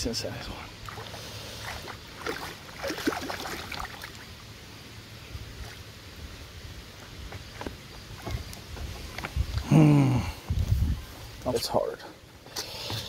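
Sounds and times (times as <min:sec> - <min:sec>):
fish splashing in water: 0:00.9 - 0:04.3.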